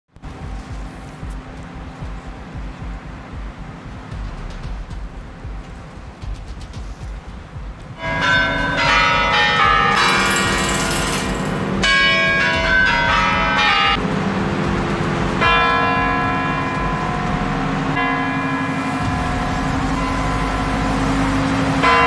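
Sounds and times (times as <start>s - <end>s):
clock bells ringing a melody: 8.0s - 14.0s, 15.4s - 22.0s.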